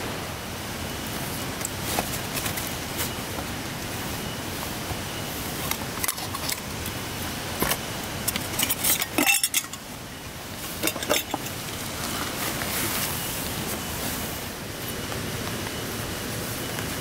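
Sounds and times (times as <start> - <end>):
heavy rain hiss: 0.0 - 17.0
light metallic clinks: 7.6 - 9.9.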